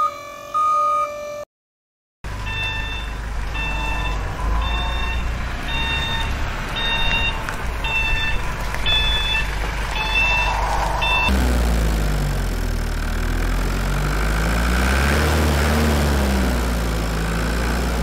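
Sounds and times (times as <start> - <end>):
toy beeping like reversing alarm: 0.0 - 1.3, 2.4 - 10.5
low rumble: 7.7 - 14.0.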